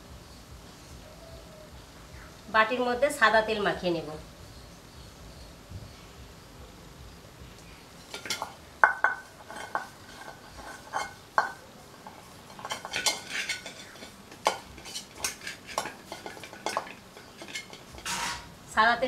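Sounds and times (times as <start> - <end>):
metal bowl clinking and scraping: 8.0 - 18.5.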